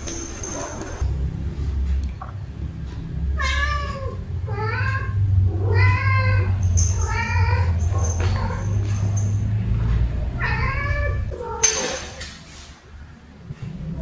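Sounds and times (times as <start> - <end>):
cat meowing: 3.4 - 8.8, 10.4 - 11.7.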